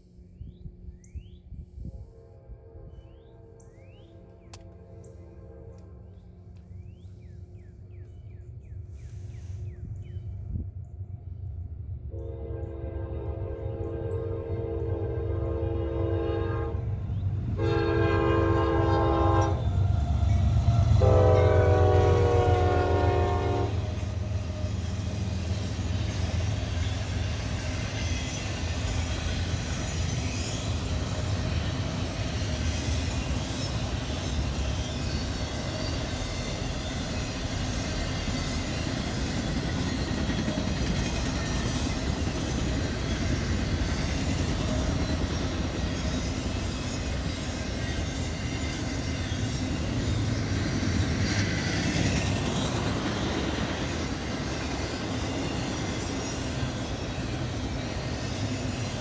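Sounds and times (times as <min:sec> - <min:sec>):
locomotive engines rumbling: 0:00.1 - 0:59.0
locomotive horn blasts: 0:01.8 - 0:06.3, 0:12.1 - 0:16.9, 0:17.6 - 0:20.0, 0:20.8 - 0:24.0.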